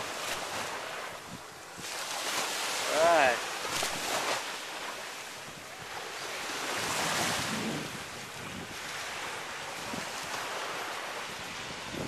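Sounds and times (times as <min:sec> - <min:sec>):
small waves washing onto shore: 0:00.0 - 0:12.0
wind buffeting microphone: 0:05.4 - 0:12.0.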